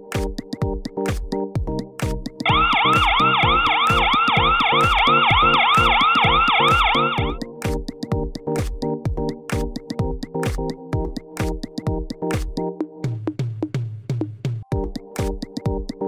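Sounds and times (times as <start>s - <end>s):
electronic dance music: 2.0s - 12.6s
alarm siren wailing: 2.4s - 7.4s.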